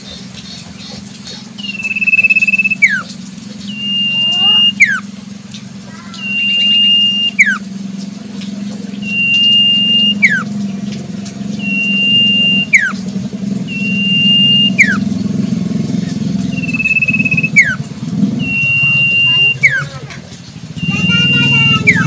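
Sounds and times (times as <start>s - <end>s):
low steady hum: 0.0s - 22.0s
bird whistling song: 0.1s - 5.1s, 6.0s - 7.7s, 9.0s - 10.6s, 11.5s - 13.0s, 13.6s - 15.4s, 16.1s - 20.0s, 20.8s - 22.0s.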